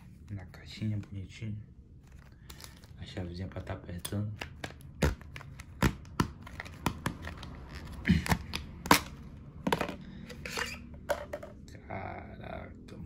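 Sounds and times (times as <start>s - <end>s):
plastic packaging crinkling: 2.0s - 3.4s.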